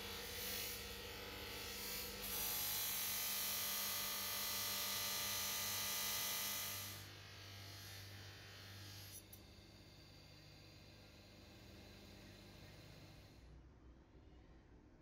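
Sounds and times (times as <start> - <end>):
bench grinder motor hum: 10.3 - 13.4.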